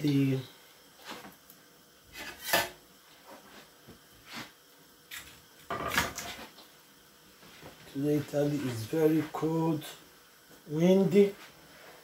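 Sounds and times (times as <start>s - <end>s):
cookware and utensils scraping: 2.1s - 2.8s.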